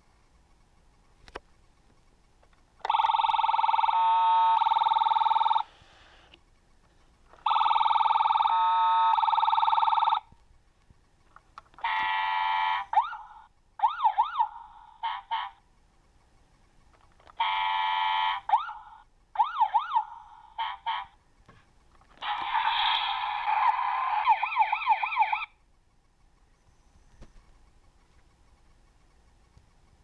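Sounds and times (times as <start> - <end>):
electronic toy siren: 2.8 - 5.7, 7.4 - 10.3, 11.8 - 15.6, 17.4 - 21.2, 22.2 - 25.6.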